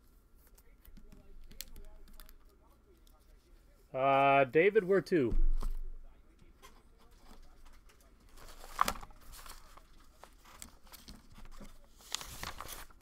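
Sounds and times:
wrapper rustling and crinkling: 7.1 - 13.0.

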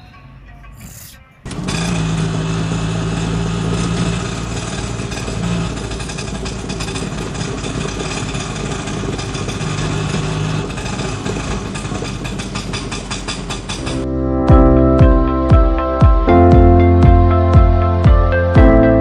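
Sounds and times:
small engine idling: 1.4 - 14.1.

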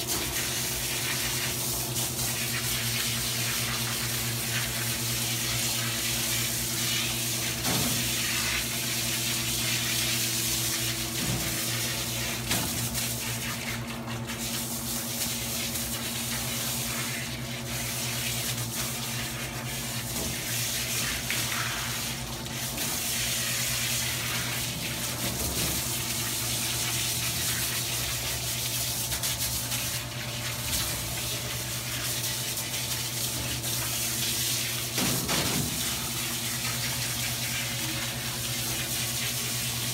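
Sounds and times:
water splashing into a metal tub: 0.0 - 39.9
water spraying from a hose: 0.0 - 39.9.

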